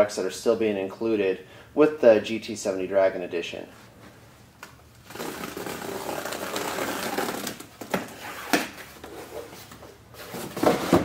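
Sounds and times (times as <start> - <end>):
cardboard scraping and rustling: 5.1 - 11.0.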